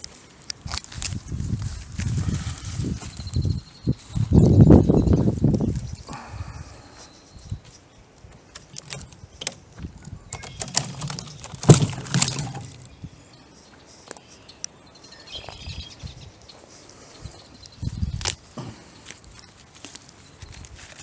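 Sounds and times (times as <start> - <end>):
bark rustling in wooden cart: 8.4 - 13.0.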